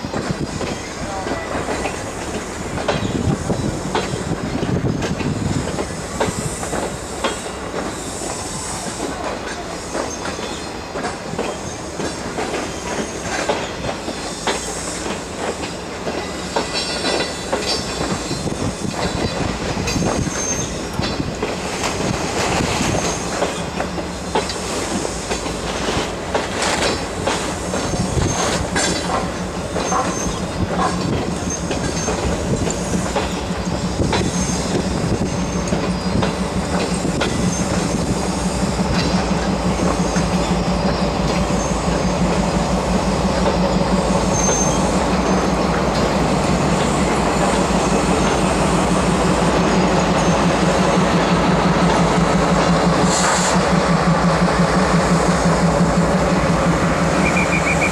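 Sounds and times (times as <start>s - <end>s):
train rumble: 0.0s - 57.9s
train wheels clacking over rail joints: 0.0s - 57.9s
high wheel squeals: 5.9s - 10.9s, 16.2s - 21.3s, 29.8s - 42.3s, 43.4s - 45.8s, 57.1s - 57.9s.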